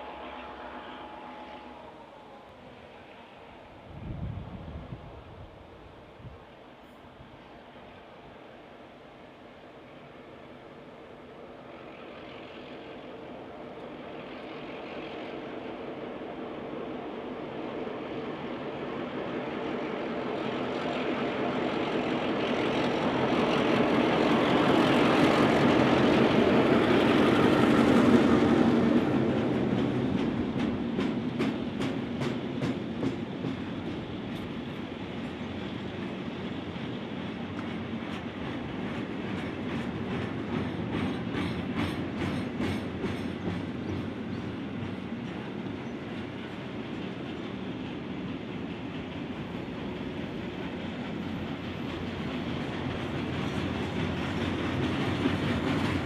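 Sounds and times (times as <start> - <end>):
diesel locomotives passing: 0.0 - 56.0
train wheels clacking over rail joints: 20.2 - 56.0.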